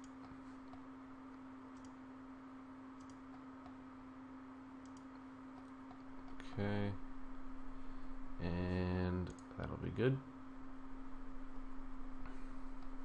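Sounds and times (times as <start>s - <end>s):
low electrical hum and hiss: 0.0s - 13.0s
computer mouse clicks: 1.7s - 2.0s, 3.0s - 3.8s, 4.8s - 6.5s.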